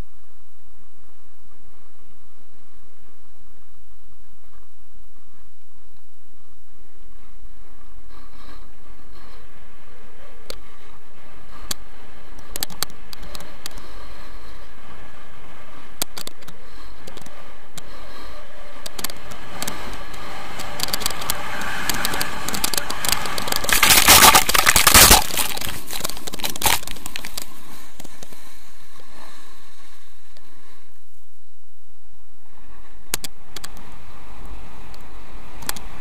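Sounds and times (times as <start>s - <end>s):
skis scraping over packed snow: 6.4s - 30.8s
snow crackles: 16.6s - 30.8s.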